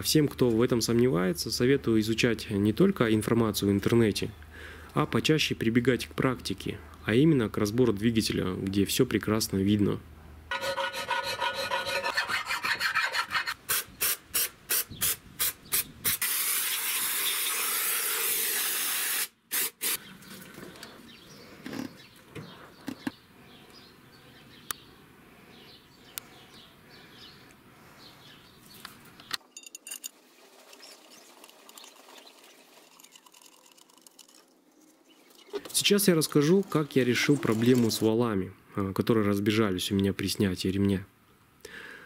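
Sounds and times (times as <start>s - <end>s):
hand file rasping on metal: 10.5s - 13.6s.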